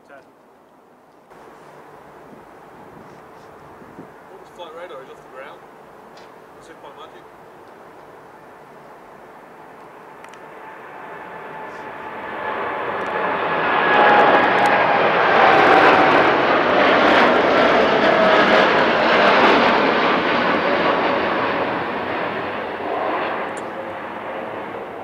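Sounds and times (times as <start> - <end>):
jet airliner engines roaring overhead: 1.4 - 25.0
fan whine sliding down in pitch: 10.4 - 20.0.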